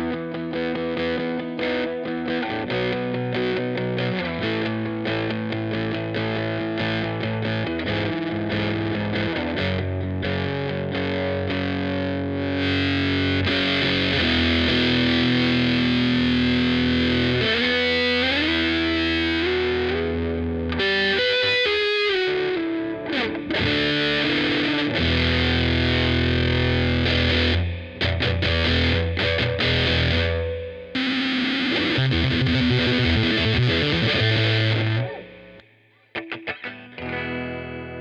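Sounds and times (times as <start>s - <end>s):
fuzz bass guitar: 0.0s - 38.0s.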